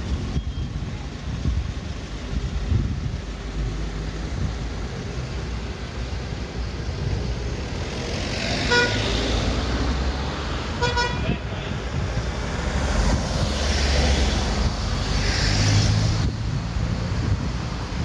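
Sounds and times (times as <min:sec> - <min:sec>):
cars passing: 0:00.0 - 0:18.0
car horn toot: 0:08.7 - 0:09.0, 0:10.8 - 0:11.5.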